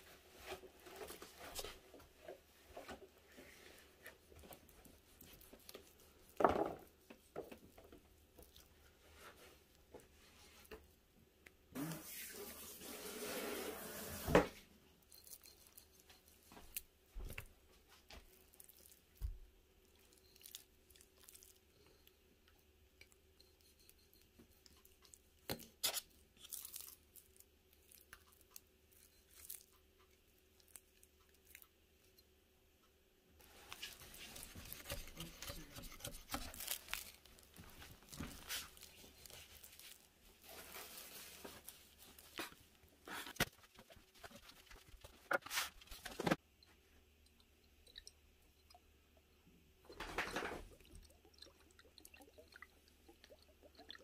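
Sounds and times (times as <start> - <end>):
wet tearing and crinkling: 25.8 - 28.6, 33.7 - 42.7.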